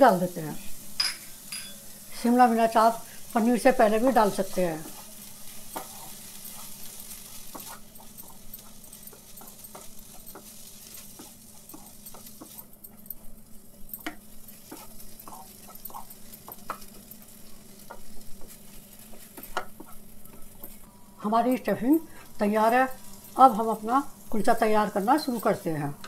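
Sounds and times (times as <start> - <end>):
faint frying sizzle: 0.0 - 26.0
wooden spatula scraping a pan: 3.7 - 13.0, 14.0 - 20.9.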